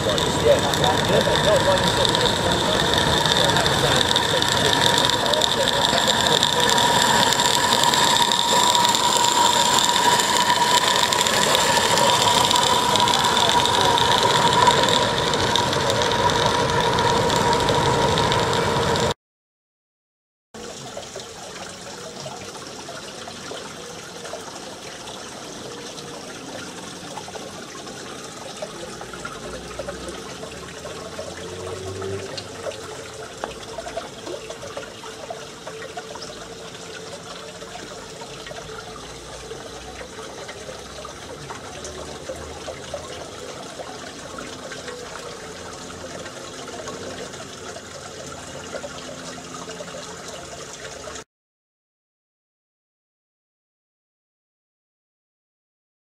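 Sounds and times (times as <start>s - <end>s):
model steam locomotive hissing: 0.0s - 19.1s
steady high ringing tone: 0.0s - 19.2s, 21.2s - 51.2s.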